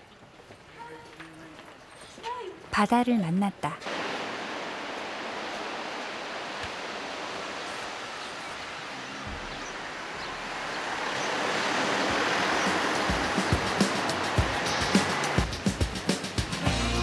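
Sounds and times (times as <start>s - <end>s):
sea surf washing on shore: 3.8s - 16.6s.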